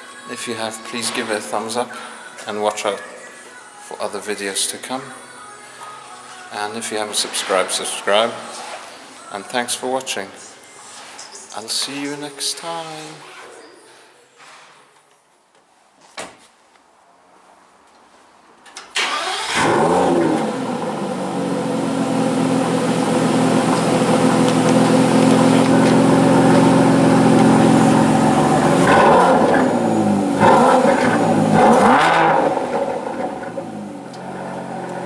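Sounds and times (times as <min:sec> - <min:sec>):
car engine starting and idling: 0:18.9 - 0:35.0.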